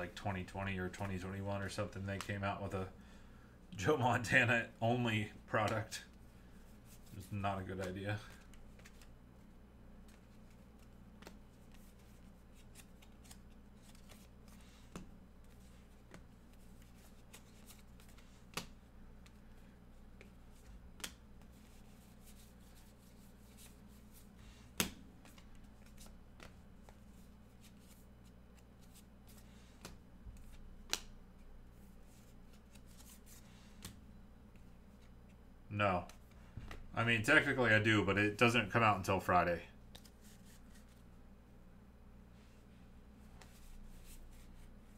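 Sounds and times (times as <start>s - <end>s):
cards sliding and flicking: 7.8s - 9.1s, 10.0s - 31.2s, 32.0s - 35.4s, 39.9s - 41.0s.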